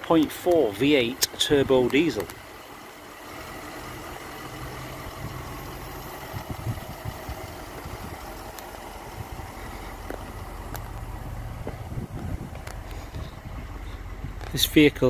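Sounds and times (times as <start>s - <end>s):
diesel engine idling: 0.0s - 15.0s
low thumps: 6.2s - 14.6s.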